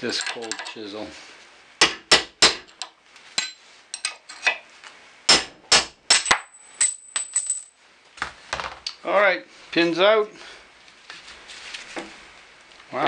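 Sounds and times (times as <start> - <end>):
hammer striking a chisel: 1.8 - 2.7, 5.3 - 6.5.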